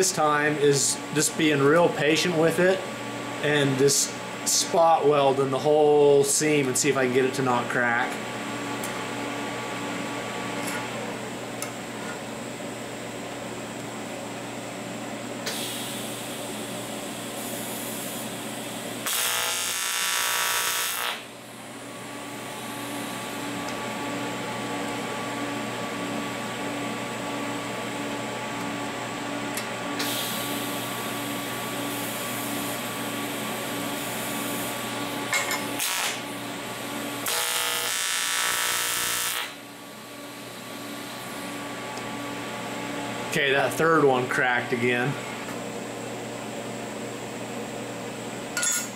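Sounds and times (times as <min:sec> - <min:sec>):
welding arc buzzing: 0:15.4 - 0:25.5, 0:29.5 - 0:39.7
welding machine hum: 0:15.4 - 0:45.6.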